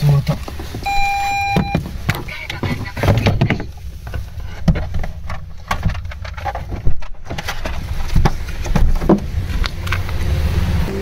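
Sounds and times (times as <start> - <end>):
car engine and road rumble: 0.0 - 11.0
knocks and rattles: 1.6 - 10.1.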